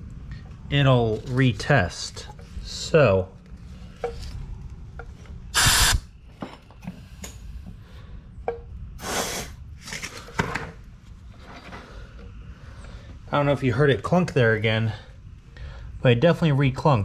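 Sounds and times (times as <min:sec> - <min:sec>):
compressed air hisses: 0:05.6 - 0:06.1, 0:09.0 - 0:09.6.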